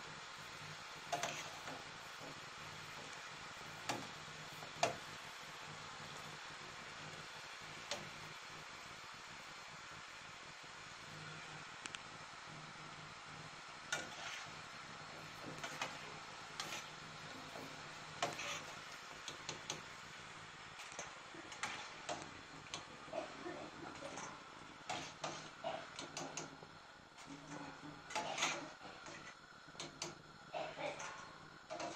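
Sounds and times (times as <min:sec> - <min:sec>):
dough frying in oil: 0:00.0 - 0:31.9
metal spatula scraping pan: 0:14.0 - 0:14.6, 0:15.6 - 0:17.0, 0:17.6 - 0:18.8.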